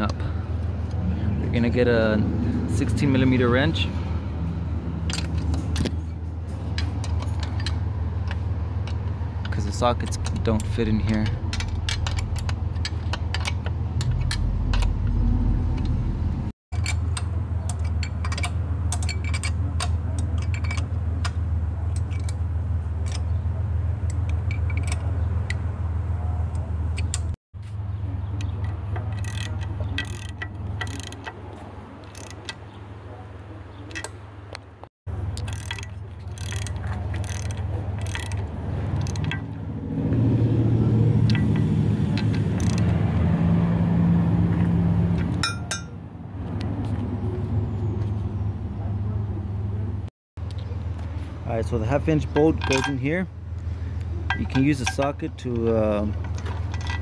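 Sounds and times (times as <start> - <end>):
ratchet wrench clicking: 29.0 - 31.3, 32.0 - 32.6, 35.3 - 39.4, 42.2 - 42.8.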